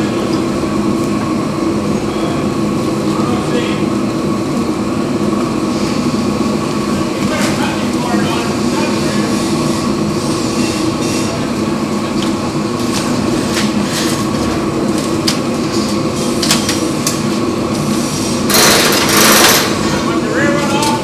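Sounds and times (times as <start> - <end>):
steaming rig drone: 0.0 - 21.0
loud steam hiss: 17.8 - 20.4.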